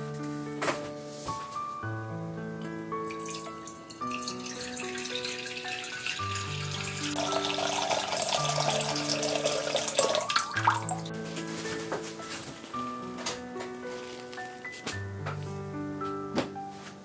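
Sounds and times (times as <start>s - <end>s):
music of sustained notes: 0.0s - 17.0s
water pouring into metal pot: 3.0s - 11.1s.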